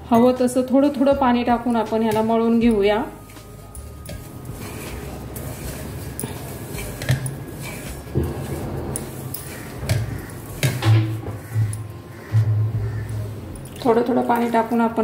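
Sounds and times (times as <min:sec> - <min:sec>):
hands rubbing flour in bowl: 0:03.1 - 0:10.8.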